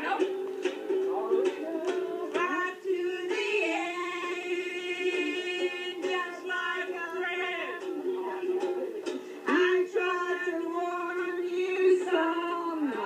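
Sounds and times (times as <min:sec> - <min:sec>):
ukulele strumming: 0:00.0 - 0:13.0
voices singing: 0:00.0 - 0:13.0.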